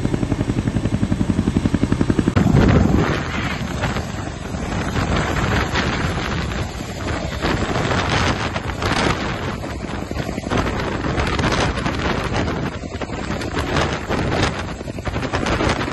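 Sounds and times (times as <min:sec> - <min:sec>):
helicopter rotor noise: 0:00.0 - 0:15.9
wind buffeting microphone: 0:00.0 - 0:15.9.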